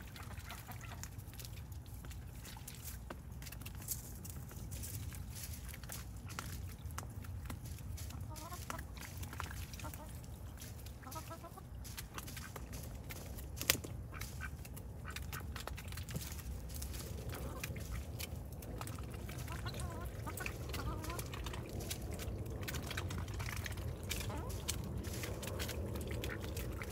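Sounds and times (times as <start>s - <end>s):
hens clucking: 8.0s - 26.9s.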